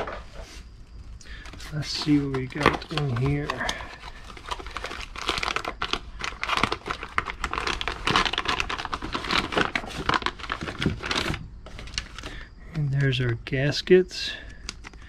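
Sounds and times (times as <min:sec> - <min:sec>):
plastic bags crinkling: 0:01.2 - 0:13.0.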